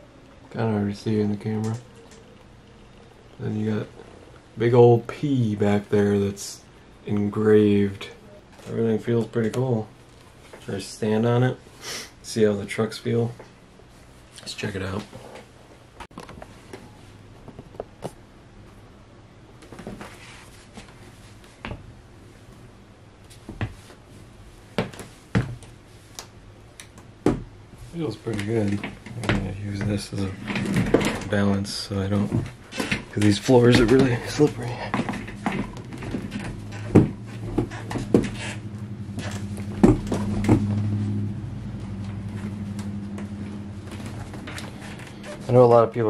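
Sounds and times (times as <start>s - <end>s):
steady low hum: 0.0s - 46.0s
skateboard shifting on wooden floor: 28.3s - 41.3s.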